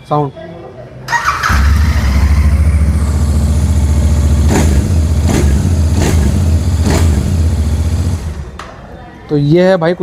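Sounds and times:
motorcycle engine idling: 0:01.1 - 0:08.4.

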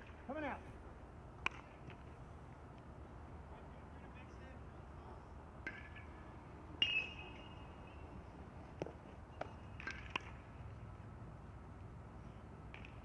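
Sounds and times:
metal bat hitting balls: 0:01.4 - 0:01.9, 0:05.6 - 0:06.2, 0:08.8 - 0:10.4, 0:12.7 - 0:13.0.

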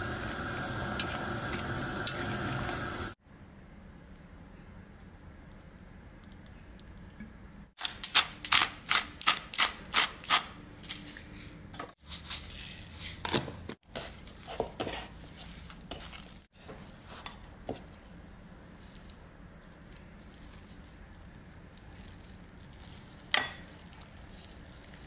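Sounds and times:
soft handling sounds: 0:13.9 - 0:25.0.

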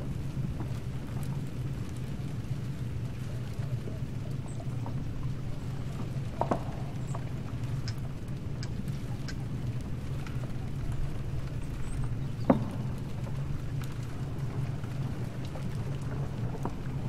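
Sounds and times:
faint ticks: 0:05.6 - 0:17.0.

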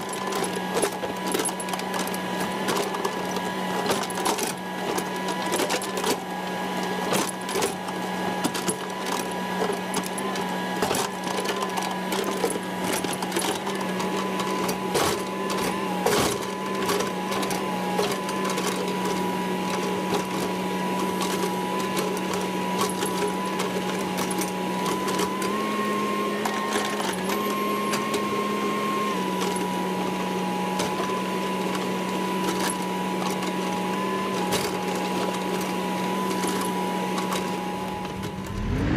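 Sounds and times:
excavator diesel engine running: 0:37.5 - 0:38.9.

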